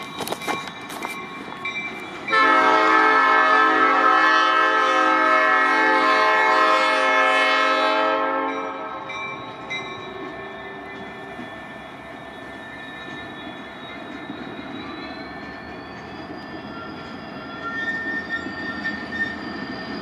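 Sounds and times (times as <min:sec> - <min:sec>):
locomotive air horn blast: 0:02.3 - 0:08.8.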